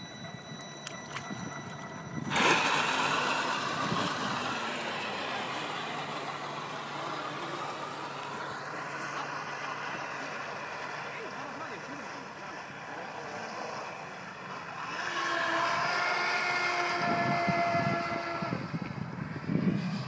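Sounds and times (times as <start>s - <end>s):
model boat motor: 0.0s - 20.0s
water rushing against hull: 1.0s - 19.4s.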